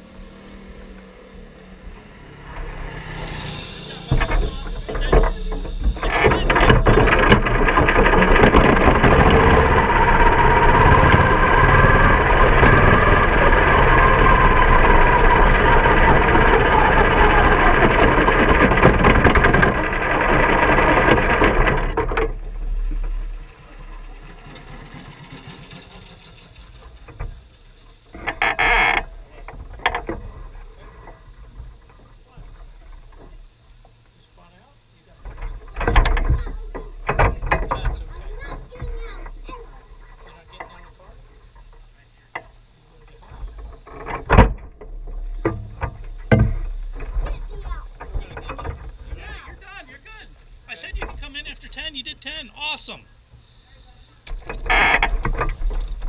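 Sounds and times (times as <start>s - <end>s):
small race car engine running: 0.0s - 33.6s.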